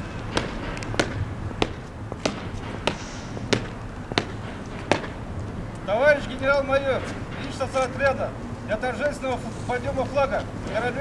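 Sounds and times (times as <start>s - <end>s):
boot heels marching on concrete: 0.0s - 8.0s.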